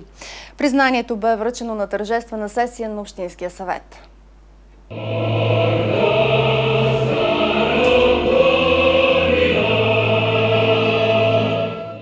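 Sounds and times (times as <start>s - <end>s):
choir singing held chords: 4.9s - 12.0s.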